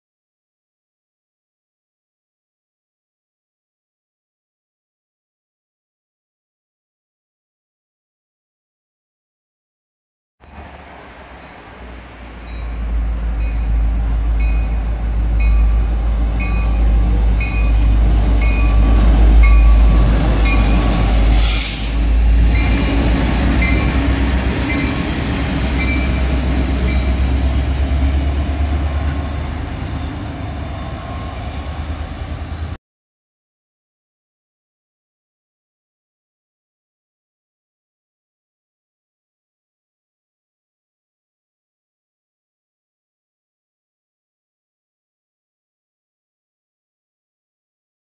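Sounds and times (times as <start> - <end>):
train rumbling and clicking: 10.4 - 32.8
short hissing burst: 21.3 - 22.1.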